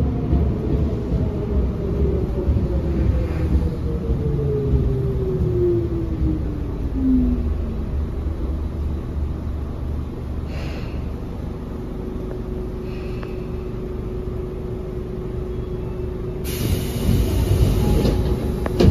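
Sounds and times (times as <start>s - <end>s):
train rumble in tunnel: 0.0s - 18.9s
air hissing: 16.4s - 18.9s.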